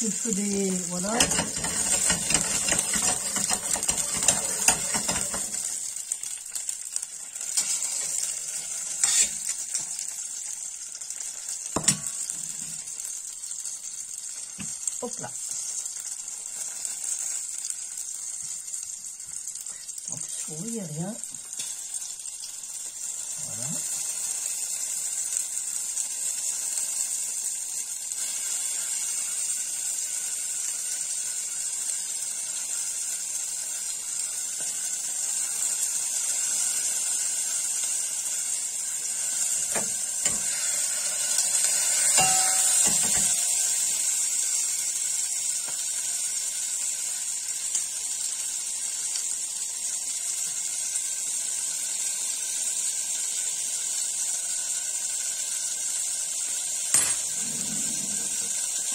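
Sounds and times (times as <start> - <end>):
gas hob hissing: 0.0 - 58.9
utensils knocking and clinking: 1.2 - 5.6, 42.2 - 43.4.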